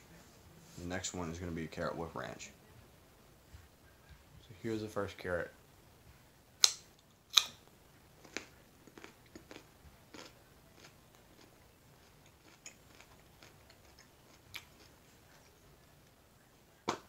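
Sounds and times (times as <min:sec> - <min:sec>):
carrot being chewed: 0:08.2 - 0:15.6.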